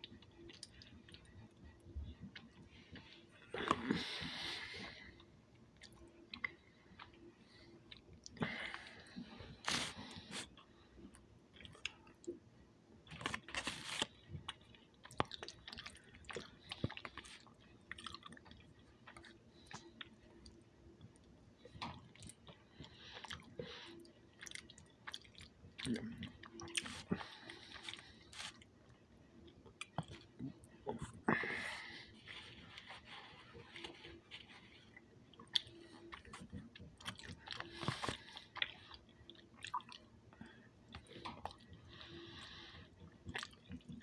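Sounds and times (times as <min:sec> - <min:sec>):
person chewing: 0:00.1 - 0:01.4, 0:13.1 - 0:21.2, 0:21.8 - 0:28.7, 0:29.6 - 0:44.0.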